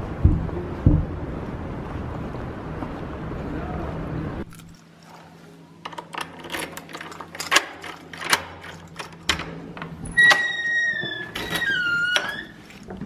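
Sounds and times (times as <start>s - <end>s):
sharp clicks and knocks: 5.8s - 12.3s
high squeaks: 10.0s - 12.6s.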